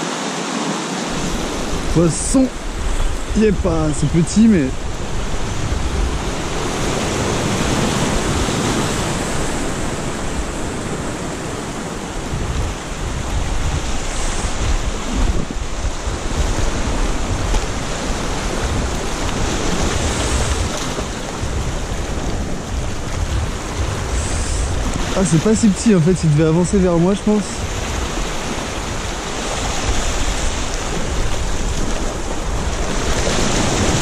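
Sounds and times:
sea surf washing over rocks: 0:00.0 - 0:34.0
wind buffeting microphone: 0:01.1 - 0:34.0.

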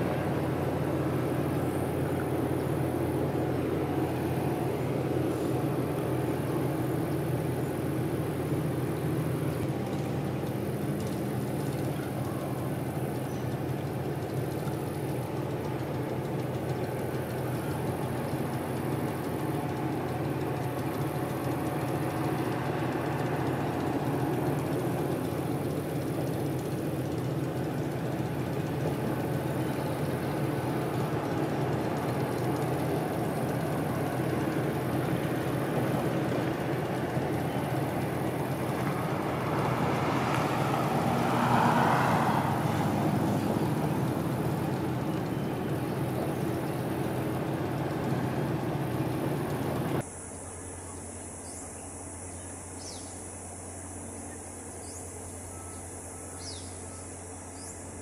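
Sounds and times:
ship engines droning: 0:00.0 - 0:58.0.

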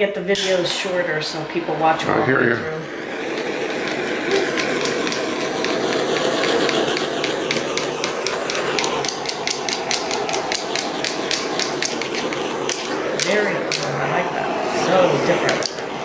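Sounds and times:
butane torch hissing: 0:00.0 - 0:16.0
sharp clicks: 0:03.3 - 0:13.9.

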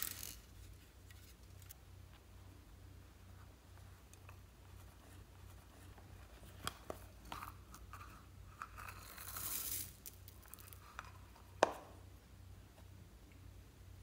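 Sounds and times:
crinkly hissing rustle: 0:08.8 - 0:11.0.

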